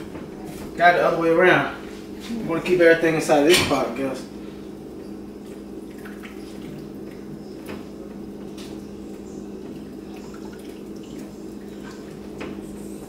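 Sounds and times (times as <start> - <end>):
steady low hum: 0.0 - 13.0
liquid dripping and splashing: 4.7 - 13.0.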